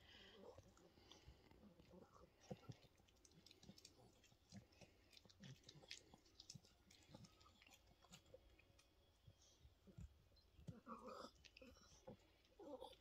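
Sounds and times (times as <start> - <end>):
dog chewing a treat: 0.4 - 9.0.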